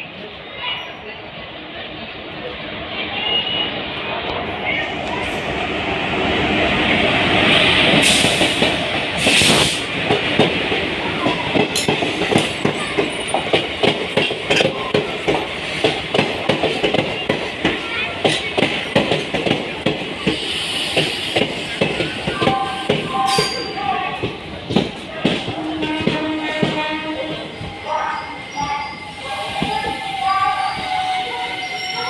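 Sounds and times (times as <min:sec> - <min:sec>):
train wheels clicking over rail joints: 0:07.8 - 0:27.6.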